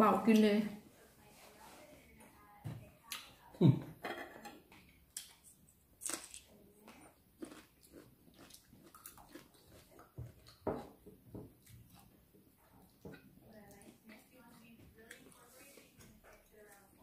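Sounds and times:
chewing: 4.7 - 17.0.

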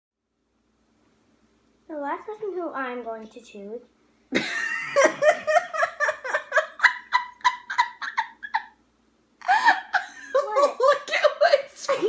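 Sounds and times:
woman laughing uncontrollably: 4.3 - 8.8, 9.4 - 12.0.

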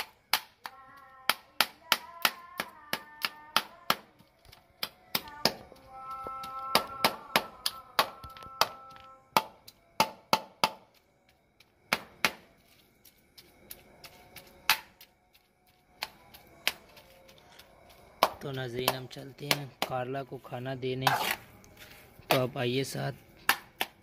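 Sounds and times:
steady ringing tone: 5.5 - 21.0
spoon scraping steel bowl: 21.0 - 21.5.

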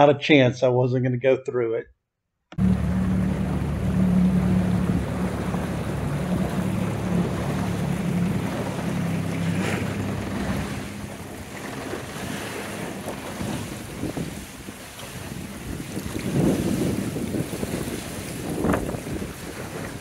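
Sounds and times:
outboard motor humming: 2.5 - 20.0
water noise: 2.5 - 20.0
wind noise: 13.2 - 20.0.

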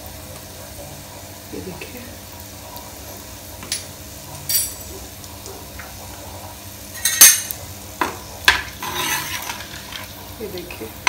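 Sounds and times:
metal utensils clinking: 4.5 - 4.9, 6.9 - 7.6, 8.5 - 10.6.

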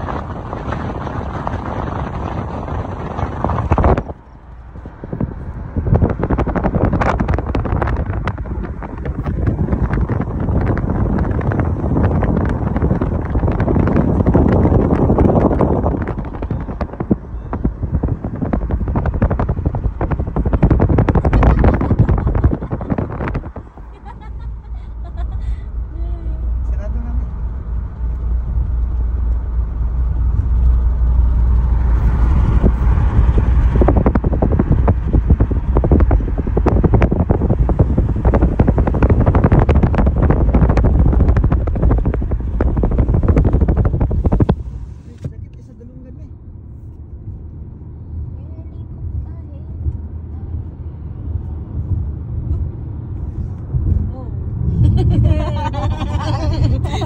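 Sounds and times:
gravel popping under tyres: 0.0 - 24.6, 27.4 - 45.2
wind buffeting a microphone: 0.0 - 57.0.

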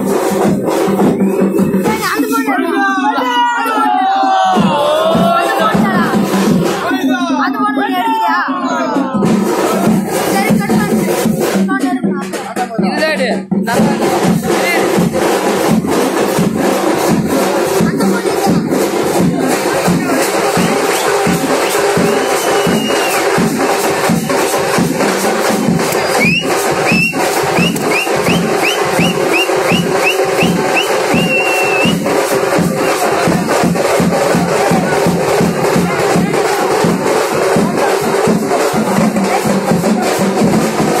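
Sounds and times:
crowd: 0.0 - 41.0
procession drums beating: 0.0 - 41.0
high sliding whistle-like notes: 20.6 - 23.4, 25.9 - 32.1.

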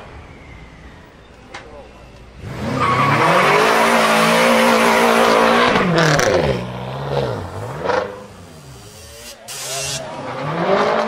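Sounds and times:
tyres spinning and squealing: 0.0 - 6.0
car engine revving: 2.4 - 11.0.

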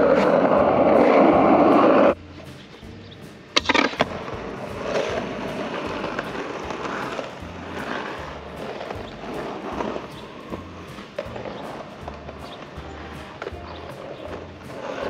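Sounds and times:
skateboard rolling on asphalt: 0.0 - 15.0.

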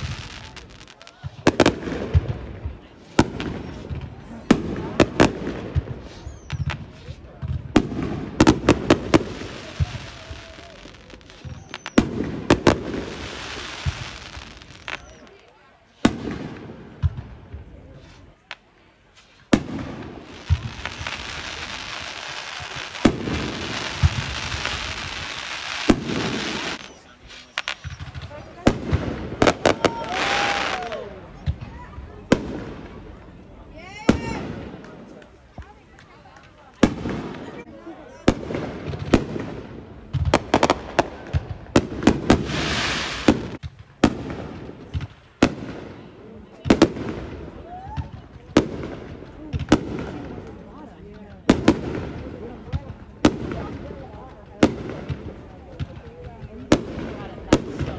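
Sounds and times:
fireworks bangs: 0.0 - 57.9
fireworks crackling: 0.0 - 57.9
low booms: 19.5 - 30.0.

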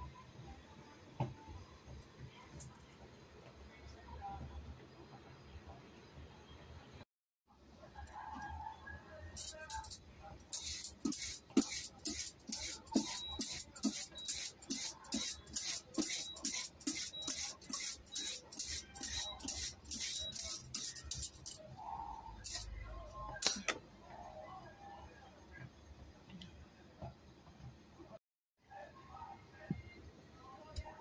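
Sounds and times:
vegetable peeler scraping radish: 10.6 - 21.6.

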